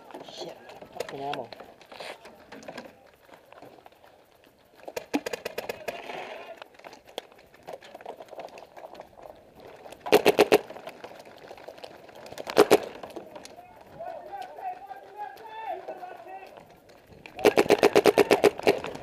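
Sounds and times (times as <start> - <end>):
paintball markers firing: 4.8 - 8.9, 9.6 - 19.0.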